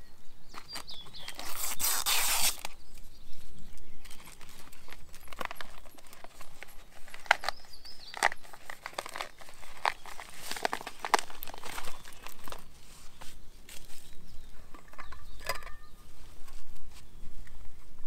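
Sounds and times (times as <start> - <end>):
pouch crinkling: 0.5 - 2.8, 4.0 - 15.2
pouch tearing open: 0.6 - 2.8, 4.3 - 14.1.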